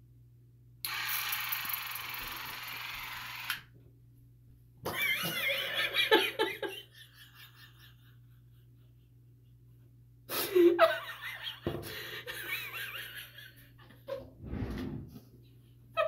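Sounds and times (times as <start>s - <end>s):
woman laughing hard: 4.9s - 9.1s, 10.3s - 14.3s.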